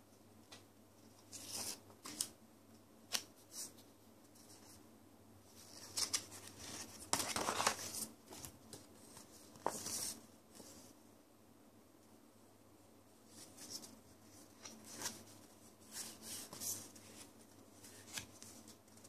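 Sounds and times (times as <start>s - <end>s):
paper booklet rustling: 5.5s - 10.9s, 13.3s - 19.0s.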